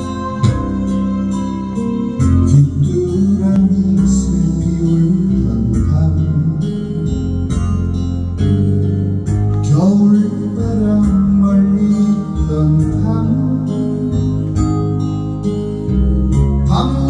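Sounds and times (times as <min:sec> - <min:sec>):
electric bass line: 0:00.0 - 0:17.0
live band playing pop song: 0:00.0 - 0:17.0.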